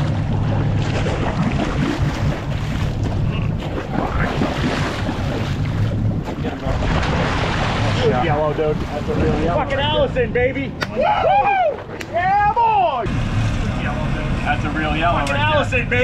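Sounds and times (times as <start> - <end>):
wind buffeting microphone: 0.0 - 12.5
boat engine humming: 0.0 - 16.0
sea noise: 0.0 - 16.0.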